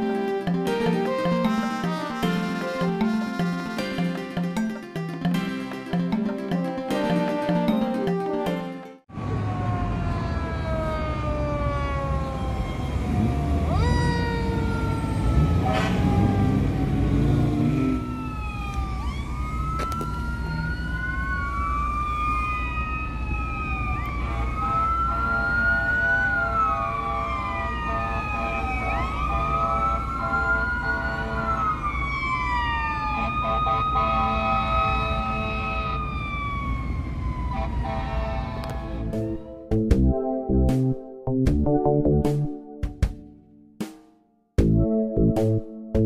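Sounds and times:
sirens wailing: 0.0 - 5.1, 6.0 - 39.7
traffic rumble: 9.1 - 39.4.

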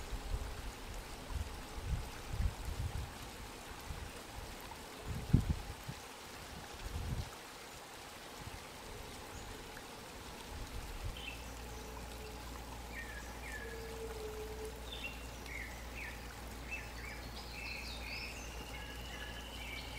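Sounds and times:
steady hiss: 0.0 - 19.9
small birds chirping: 14.8 - 19.9.

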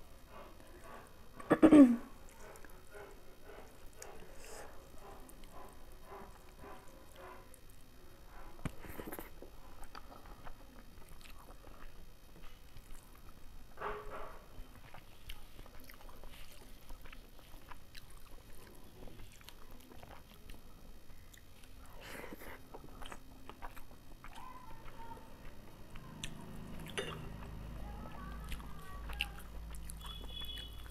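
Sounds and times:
person chewing with wet smacks: 8.6 - 13.4, 14.7 - 30.9.

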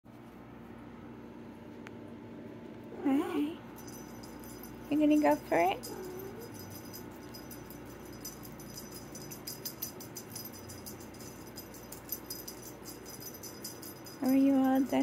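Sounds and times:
small bell jingling: 3.8 - 15.0.

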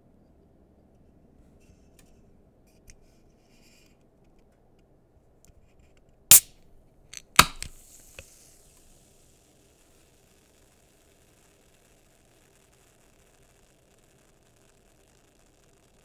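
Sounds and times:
can pull tab cracking open: 6.3 - 6.6, 7.2 - 8.3
fizzing hiss of gas: 7.2 - 15.6.

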